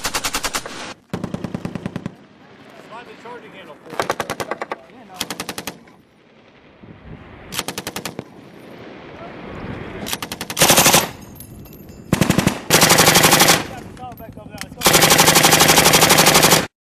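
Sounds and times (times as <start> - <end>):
machine gun bursts: 0.0 - 2.0, 3.9 - 5.8, 10.1 - 11.2, 12.1 - 13.8, 14.8 - 16.7.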